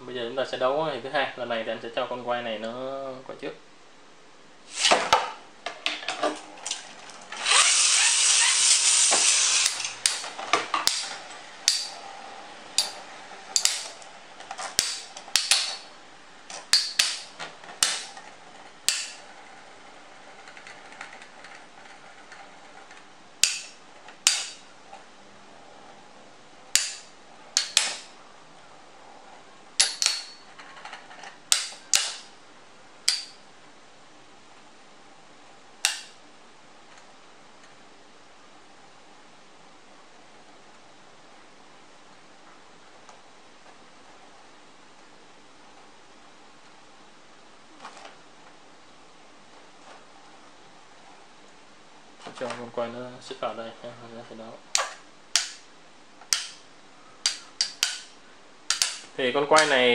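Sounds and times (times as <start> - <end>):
spinning top launched rasping rush: 4.7 - 5.1, 7.4 - 10.3
metal tops clacking together: 7.4 - 12.0, 12.7 - 15.9, 16.5 - 18.2, 18.8 - 19.2, 23.4 - 24.6, 26.7 - 28.1, 29.8 - 30.7, 31.5 - 32.3, 58.7 - 59.8.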